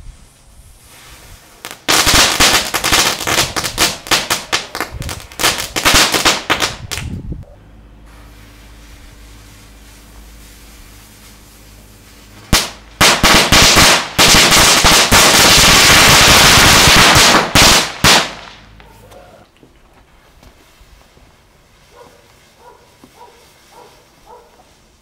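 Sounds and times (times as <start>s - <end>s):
firecracker crackling: 0.0s - 7.2s, 8.1s - 18.8s
sharp firecracker bangs: 12.5s - 18.8s.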